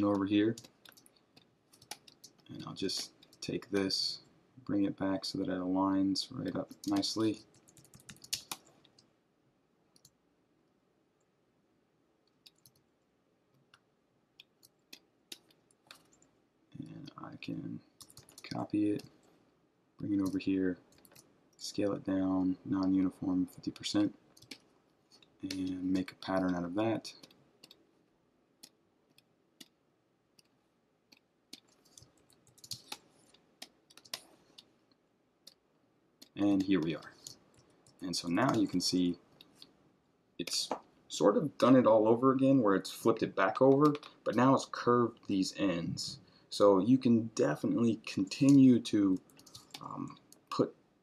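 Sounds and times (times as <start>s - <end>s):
faint room hiss: 0.0s - 51.0s
computer mouse clicks: 0.1s - 3.9s, 6.4s - 9.1s, 10.0s - 10.2s, 12.3s - 12.8s, 14.4s - 16.3s, 18.0s - 19.2s, 20.2s - 21.3s, 24.0s - 27.8s, 30.4s - 34.7s, 49.2s - 50.6s.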